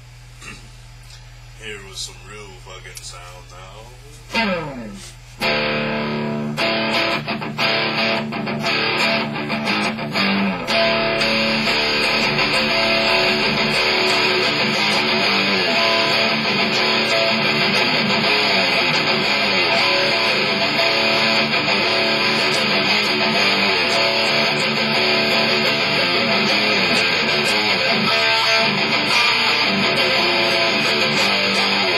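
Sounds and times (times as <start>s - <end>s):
electric guitar through amplifier: 0.0s - 31.9s.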